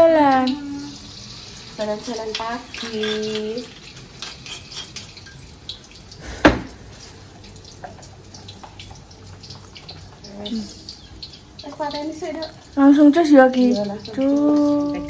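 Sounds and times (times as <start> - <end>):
light ticks and drips: 0.0 - 15.0
loud sharp knock: 6.4 - 6.7.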